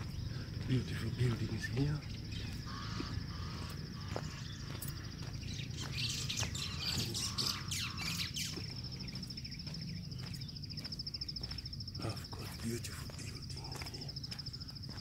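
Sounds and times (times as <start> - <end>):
birds chirping: 0.0 - 15.0
insect high pulsing trill: 0.0 - 15.0.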